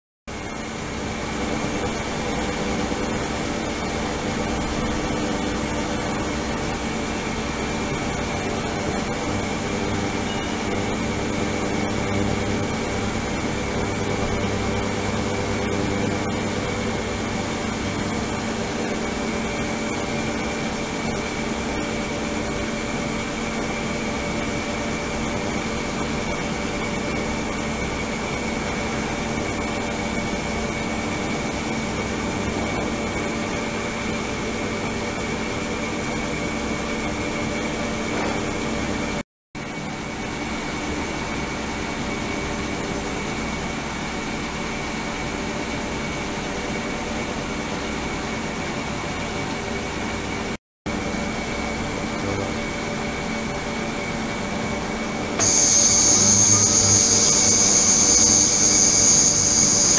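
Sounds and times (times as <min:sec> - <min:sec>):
ultrasonic cleaner hiss and hum: 0:55.4 - 0:59.9.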